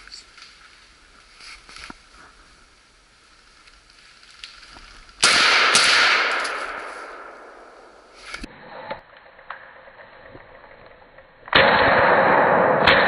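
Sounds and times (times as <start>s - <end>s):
rifle shot echoing: 5.2s - 8.1s, 11.5s - 13.0s.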